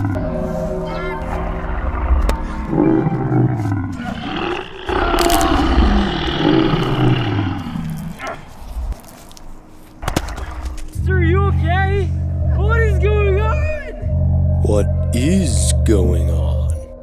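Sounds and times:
monster roars: 1.6s - 8.5s.

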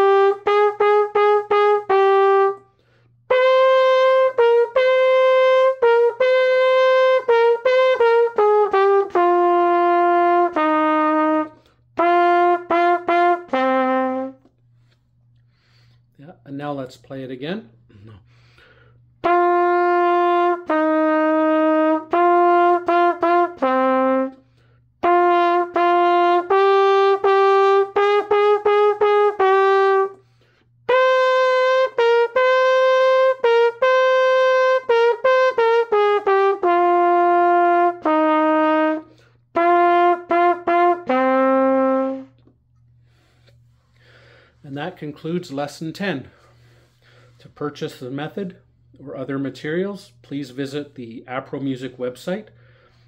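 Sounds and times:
solo trumpet melody: 0.0s - 14.5s, 19.2s - 42.5s.

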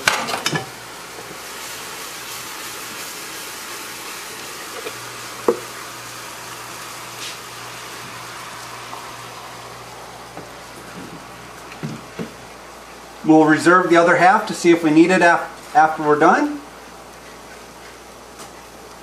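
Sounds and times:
roux sizzling in a pan: 0.0s - 13.3s
broth being poured: 1.0s - 13.0s.

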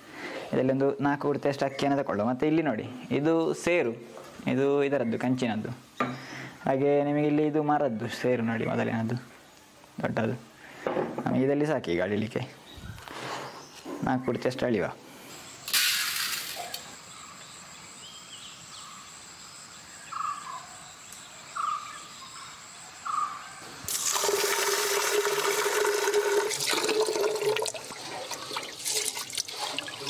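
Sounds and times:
water sloshing in metal pot: 23.9s - 30.0s.

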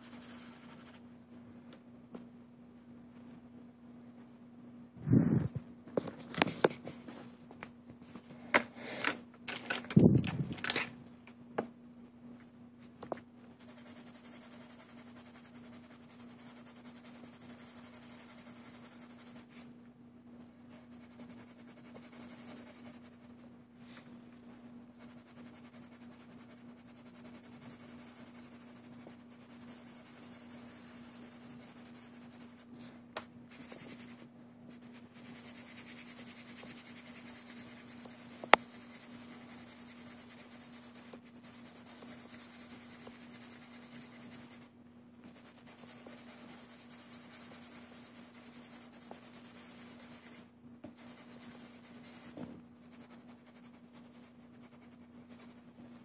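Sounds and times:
pencil scratching on paper: 0.0s - 1.0s, 13.6s - 19.6s, 20.7s - 23.4s, 25.0s - 32.7s, 33.5s - 55.6s
faint steady hum: 0.0s - 56.0s.

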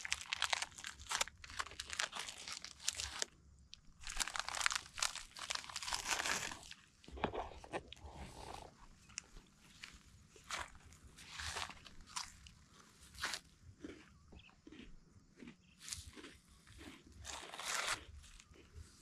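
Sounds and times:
plastic packet crinkling: 0.0s - 3.3s, 4.0s - 6.8s.

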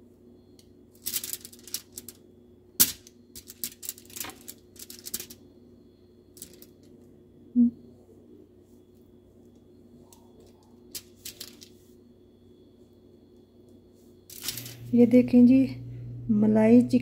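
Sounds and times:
aluminium foil crinkling: 1.0s - 2.2s, 2.9s - 5.4s, 10.4s - 11.8s, 14.3s - 14.9s.

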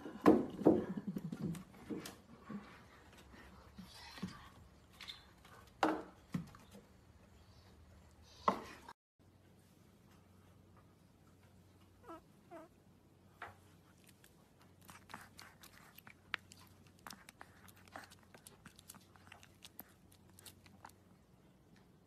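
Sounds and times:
puppy mouth clicking and smacking: 13.8s - 21.2s.

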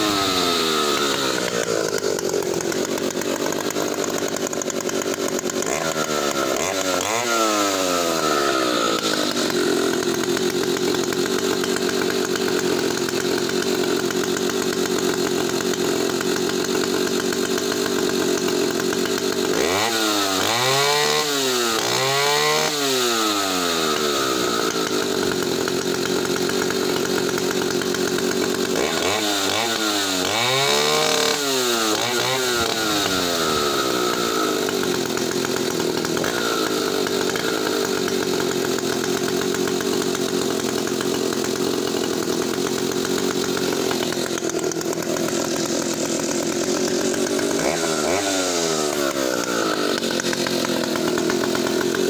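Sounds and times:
chainsaw engine revving: 0.0s - 52.0s.

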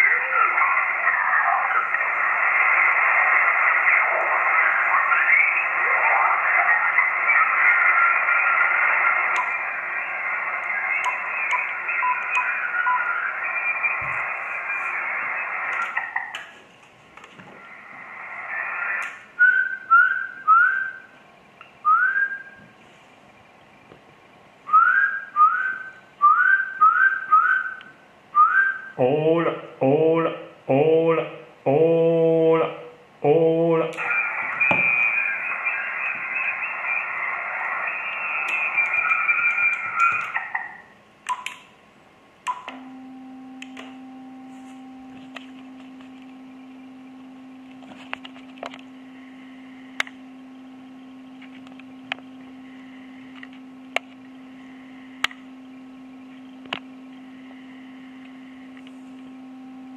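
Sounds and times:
radio whistles: 0.0s - 16.3s, 34.0s - 40.9s
voice over radio: 0.0s - 16.3s, 29.0s - 40.7s
radio hiss: 0.0s - 21.6s, 29.0s - 41.2s, 42.1s - 59.9s.

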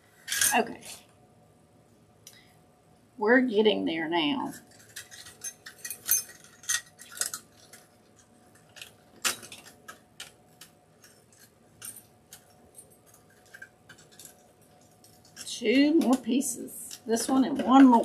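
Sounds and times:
wire clicking and scraping: 4.5s - 18.0s.

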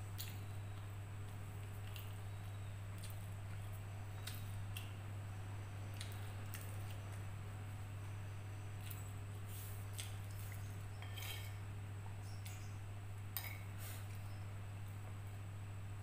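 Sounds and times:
steady low hum: 0.0s - 16.0s
metal spoon scraping a plate: 11.0s - 11.6s.

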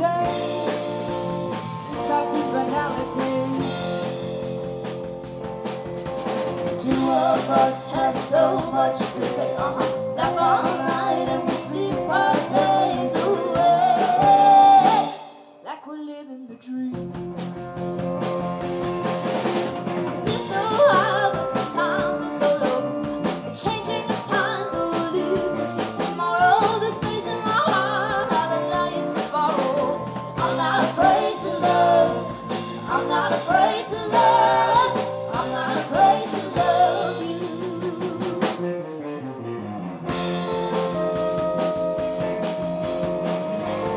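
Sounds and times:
person singing: 0.0s - 0.9s, 1.9s - 4.1s, 6.8s - 17.1s, 20.3s - 38.6s
live pop-folk band playing: 0.0s - 15.6s, 16.9s - 43.9s.

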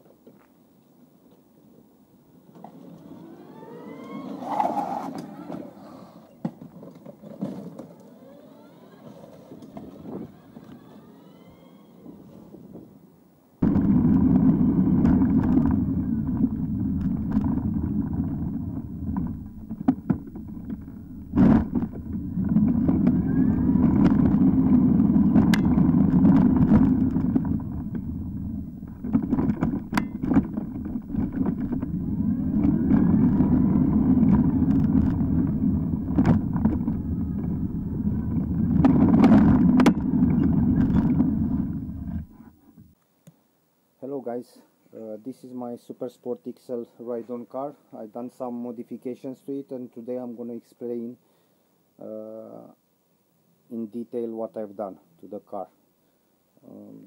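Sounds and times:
rumble of tyres and wind: 2.2s - 43.0s.

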